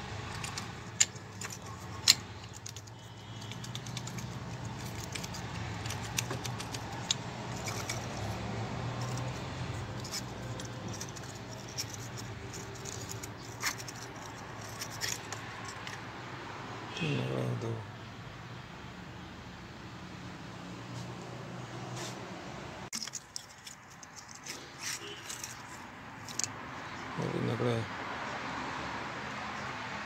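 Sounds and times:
metallic clinks and rattling: 0.2 - 16.1, 22.9 - 27.0.

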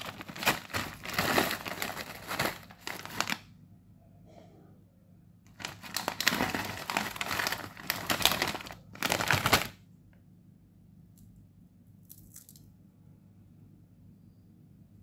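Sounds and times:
snack packet crinkling: 0.0 - 3.4, 5.5 - 9.8.

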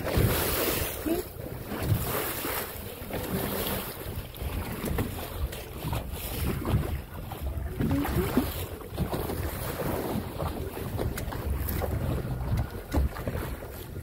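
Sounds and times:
water lapping against hull: 0.0 - 14.0
wind buffeting microphone: 3.2 - 14.0.

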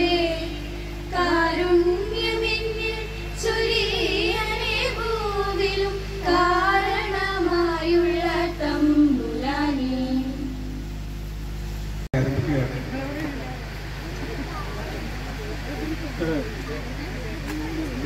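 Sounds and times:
woman singing slow melody: 0.0 - 10.8
steady low hum: 0.0 - 18.0.

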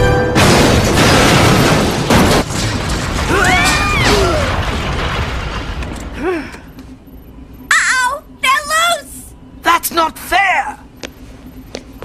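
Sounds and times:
metal doors crashing: 0.3 - 5.8
rumbling debris: 0.4 - 6.2.

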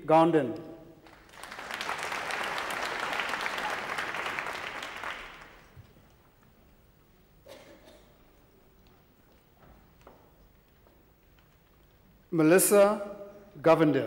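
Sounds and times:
audience clapping: 1.0 - 6.5.

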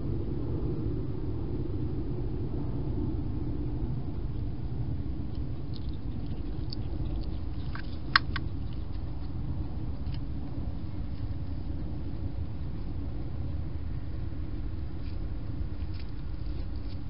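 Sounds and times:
steady low rumble: 0.0 - 17.0
hedgehog clicks and rustles: 5.4 - 11.6, 15.0 - 17.0.

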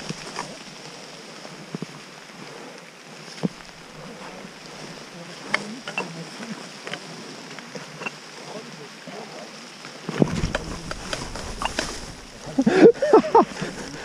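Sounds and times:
footsteps on muddy path: 0.0 - 0.8, 10.2 - 14.0
steady hiss: 0.0 - 14.0
rain jacket rustling: 10.1 - 14.0.

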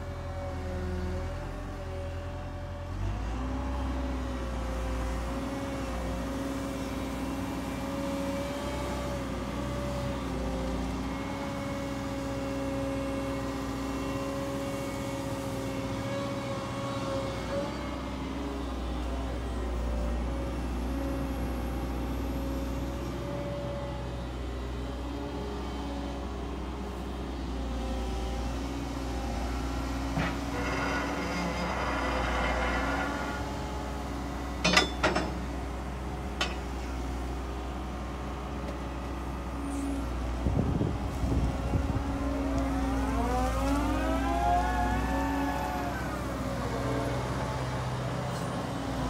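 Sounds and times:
excavator diesel engine running: 0.0 - 49.0
hydraulic whine: 30.1 - 34.0.

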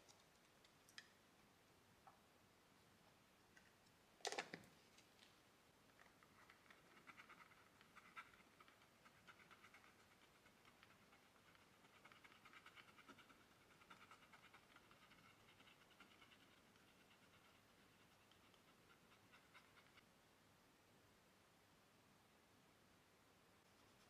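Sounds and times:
oil pastel scratching on paper: 6.5 - 20.0.

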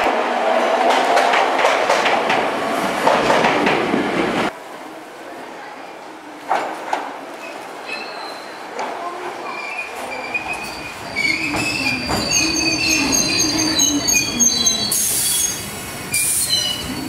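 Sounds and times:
train wheels squealing: 9.5 - 17.0.

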